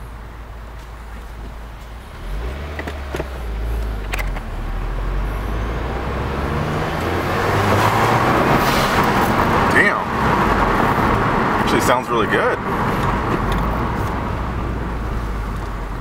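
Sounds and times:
car engine accelerating: 1.1s - 16.0s.

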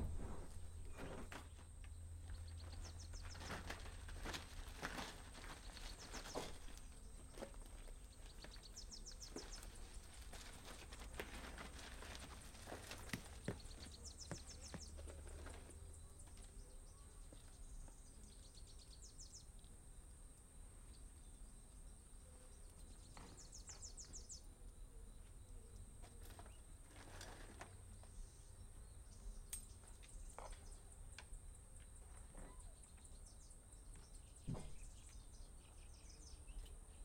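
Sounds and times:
birds chirping in trills: 12.6s - 19.8s, 20.8s - 27.0s.

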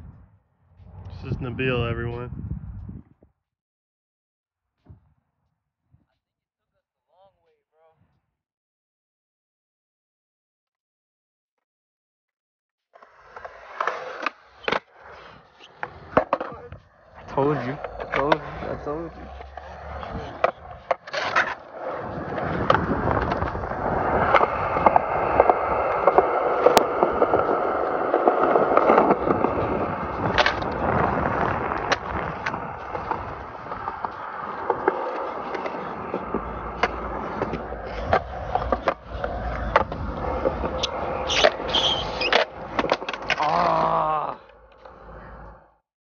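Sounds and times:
skateboard clacks: 13.0s - 45.2s
skateboard wheels rolling on concrete: 13.0s - 45.8s
person yelling: 43.4s - 44.5s.

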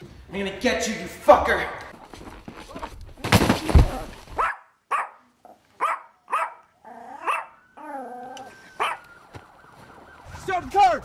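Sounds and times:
loud rustling thud: 2.2s - 4.4s
dog barking: 4.4s - 7.6s, 8.8s - 9.0s
dog whining: 5.8s - 9.0s.

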